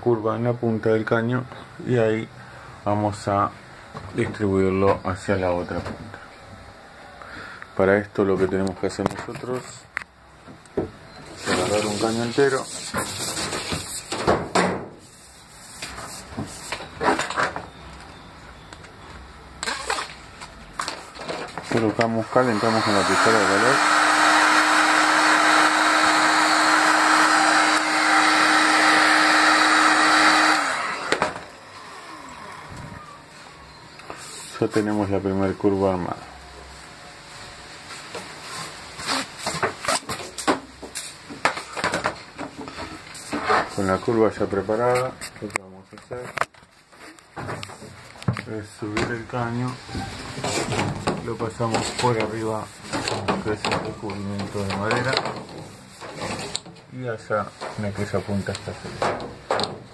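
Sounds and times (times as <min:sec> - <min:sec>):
plastic conduit knocking and rustling: 0:52.9 - 0:56.9, 0:58.9 - 0:59.9.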